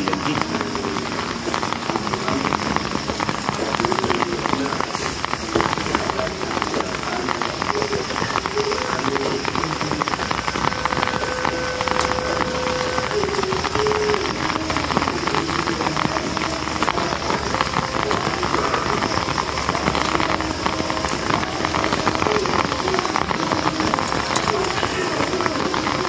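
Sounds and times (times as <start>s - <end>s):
heavy rain on concrete: 0.0s - 26.0s.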